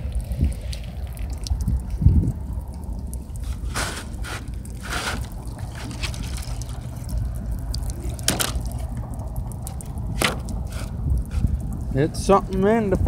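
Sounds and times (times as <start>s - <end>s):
steady low rumble: 0.0s - 13.0s
water trickling and dripping: 0.0s - 13.0s
short crackles: 3.4s - 11.8s.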